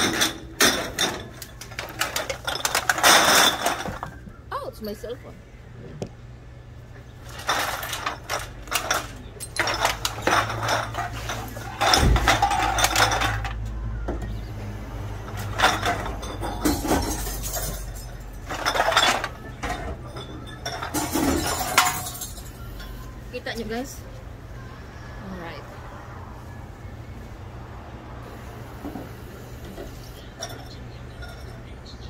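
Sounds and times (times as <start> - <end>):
glass bottles clinking: 0.0 - 4.3, 7.2 - 13.6, 15.2 - 23.9, 29.9 - 32.0.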